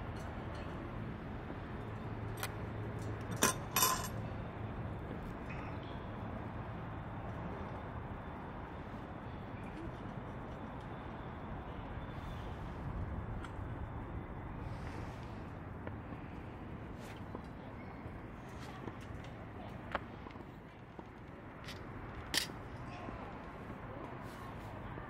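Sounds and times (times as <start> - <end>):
metallic clinks: 3.3 - 4.3.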